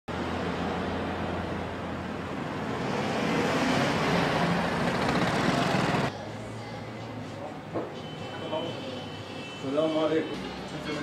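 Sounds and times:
street traffic: 0:00.1 - 0:11.0
motor scooter passing by: 0:02.4 - 0:06.1.

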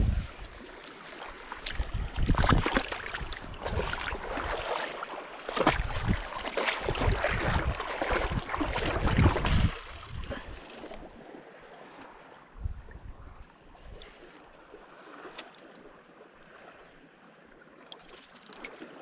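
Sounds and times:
shallow water splashing: 0:00.3 - 0:13.0.

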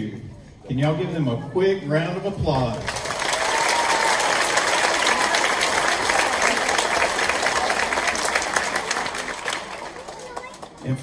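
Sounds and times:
large audience applauding: 0:02.8 - 0:11.0.

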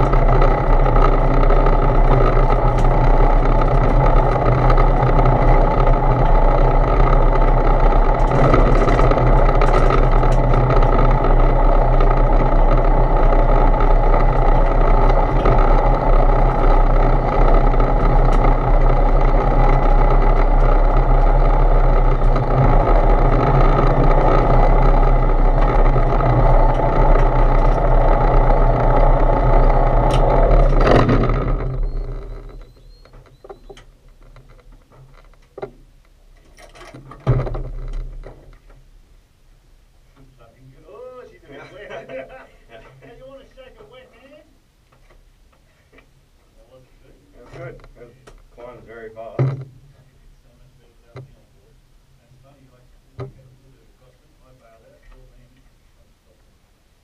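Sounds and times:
light aircraft engine running: 0:00.0 - 0:33.8
propeller winding down: 0:00.0 - 0:35.3.

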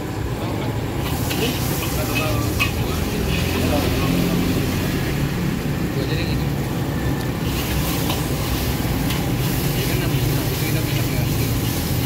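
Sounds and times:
metal spatula scraping wok: 0:01.0 - 0:04.1, 0:07.4 - 0:12.0.

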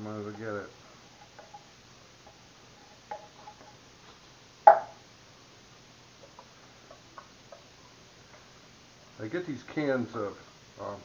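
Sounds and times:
sharp knock: 0:04.7 - 0:05.0.

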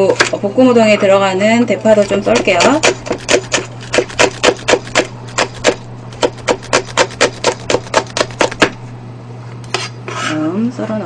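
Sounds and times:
knife chopping on cutting board: 0:02.0 - 0:08.8.

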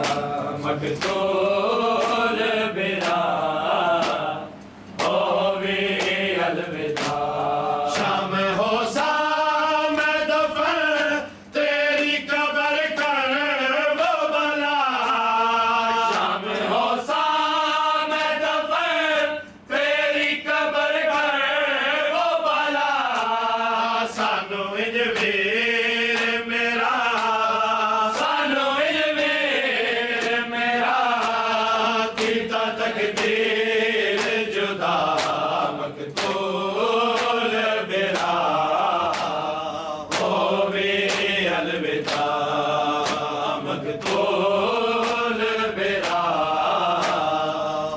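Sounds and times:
men chanting a lament: 0:00.0 - 0:47.9
rhythmic strikes: 0:24.1 - 0:47.9.

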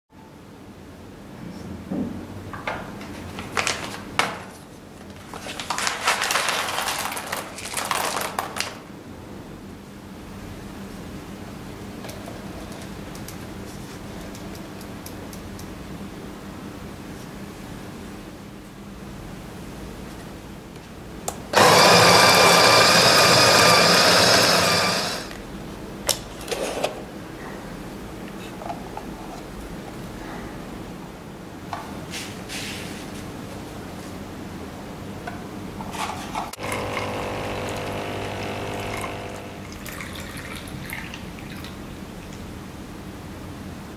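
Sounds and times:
paper bag crackling: 0:03.1 - 0:08.8
coffee beans pouring into grinder: 0:05.6 - 0:08.7, 0:21.6 - 0:25.3, 0:36.6 - 0:40.7.

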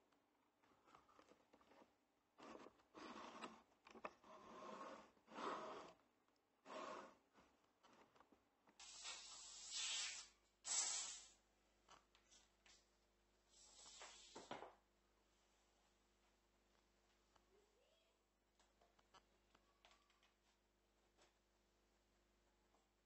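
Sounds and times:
wooden block scraping: 0:00.9 - 0:06.0, 0:06.6 - 0:09.6.

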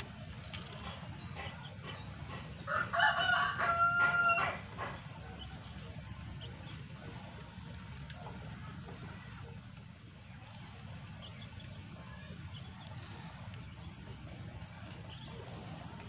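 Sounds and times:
rooster crowing: 0:02.7 - 0:04.7.

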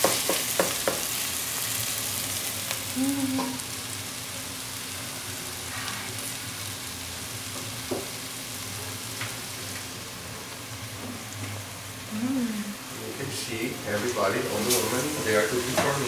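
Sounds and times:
pot sizzling over gas flame: 0:00.0 - 0:16.0
person humming: 0:02.9 - 0:03.6, 0:12.1 - 0:12.8.

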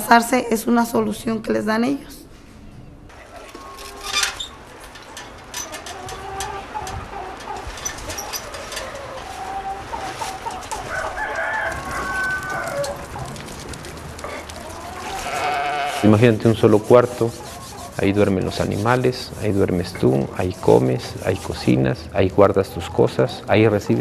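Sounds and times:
chickens clucking: 0:03.1 - 0:24.0
rooster crowing: 0:08.2 - 0:13.4.

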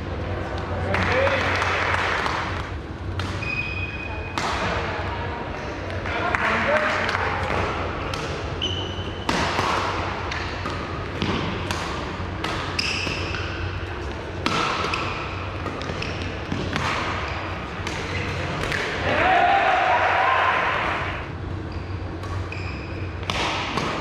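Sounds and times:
sports hall murmur: 0:00.0 - 0:24.0
shoes squeaking on floor: 0:03.4 - 0:04.1, 0:08.6 - 0:09.2, 0:12.8 - 0:13.4, 0:21.6 - 0:23.1
racket striking shuttlecock: 0:09.2 - 0:13.7, 0:14.4 - 0:19.0, 0:23.2 - 0:24.0.

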